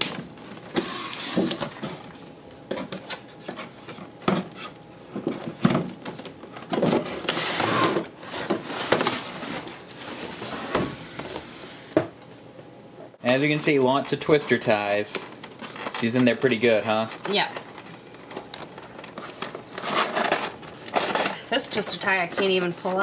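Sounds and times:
cardboard box rustling and scraping: 0:19.8 - 0:21.5.

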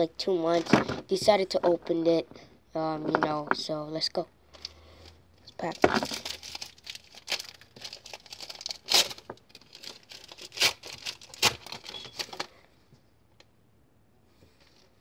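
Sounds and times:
foil wrapper crinkling: 0:05.6 - 0:12.5
foil wrapper ripping: 0:05.7 - 0:12.4.

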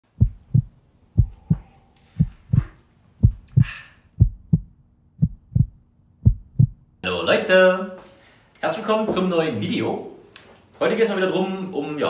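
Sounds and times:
heartbeat thumps: 0:00.1 - 0:06.9.

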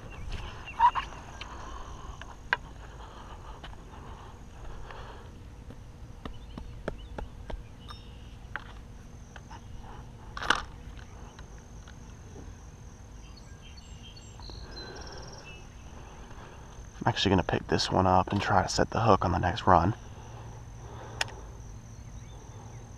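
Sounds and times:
high insect buzz: 0:00.0 - 0:22.9
low wind rumble: 0:00.0 - 0:22.9.

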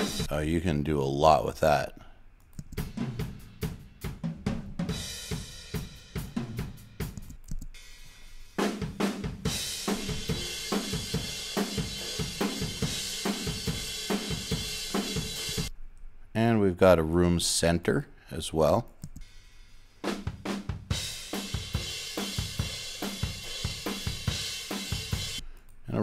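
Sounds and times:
rock drum kit playing: 0:00.0 - 0:00.4, 0:02.8 - 0:07.2, 0:07.8 - 0:15.7, 0:20.0 - 0:25.4.

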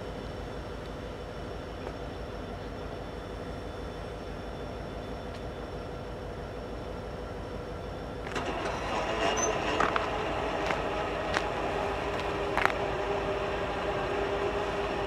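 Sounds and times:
crossing gate mechanism rushing: 0:08.2 - 0:14.7.

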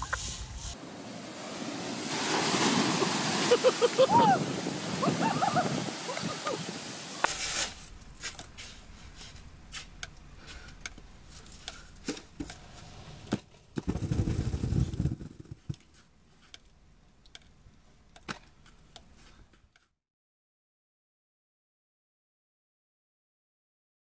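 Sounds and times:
snow mass falling rumble: 0:00.2 - 0:09.8, 0:13.9 - 0:15.8
snow shovel scraping pavement: 0:00.2 - 0:09.9, 0:12.1 - 0:16.0.

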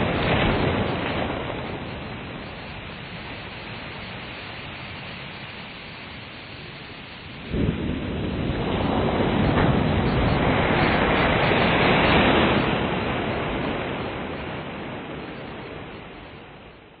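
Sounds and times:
ocean surf crashing: 0:00.0 - 0:17.0.

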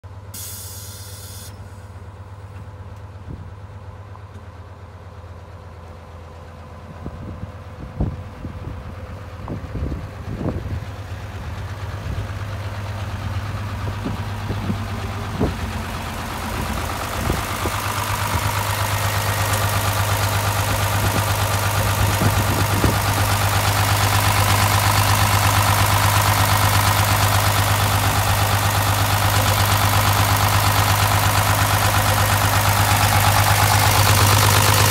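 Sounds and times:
diesel engine idling: 0:00.0 - 0:34.9.

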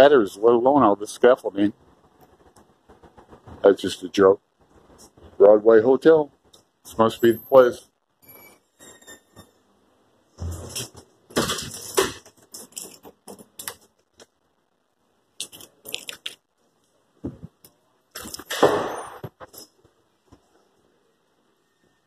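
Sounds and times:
knocks and clunks: 0:10.3 - 0:13.6
keys jangling: 0:11.5 - 0:13.9, 0:18.2 - 0:18.6.

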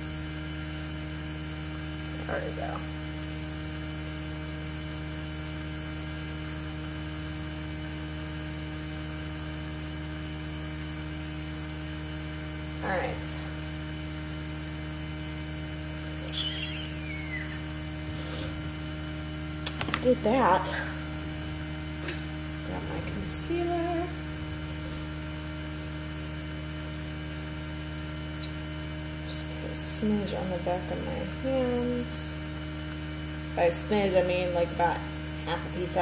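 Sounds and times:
electrical mains hum: 0:00.0 - 0:36.0
short falling whistle: 0:16.2 - 0:17.6.

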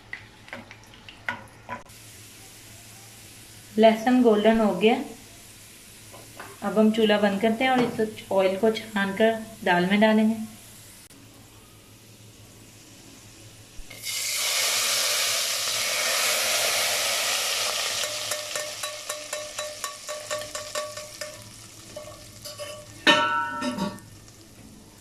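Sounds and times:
hot oil sizzling: 0:00.0 - 0:25.0
metal utensils clanking: 0:18.0 - 0:24.1.

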